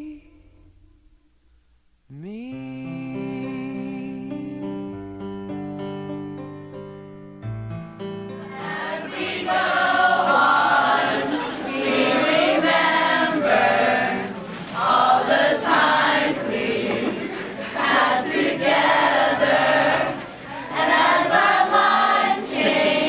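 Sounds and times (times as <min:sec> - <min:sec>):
group of young people singing: 0:08.5 - 0:23.0.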